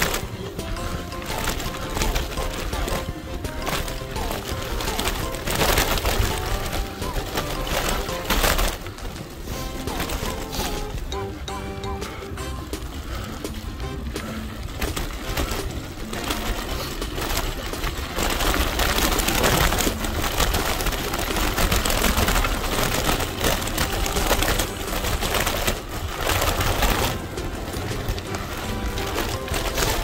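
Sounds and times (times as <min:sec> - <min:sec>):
bike rattling over bumps: 0:00.0 - 0:30.0
tyres crunching on gravel: 0:00.0 - 0:30.0.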